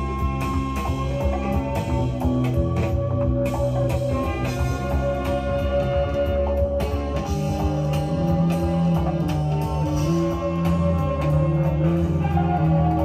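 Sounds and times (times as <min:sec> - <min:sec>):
guitar music from vinyl record: 0:00.0 - 0:13.0.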